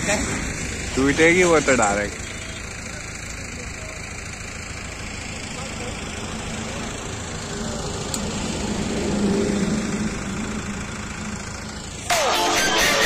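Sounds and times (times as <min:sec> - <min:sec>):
diesel engine running: 0:00.0 - 0:13.0
loud pitched sound: 0:09.4 - 0:13.0.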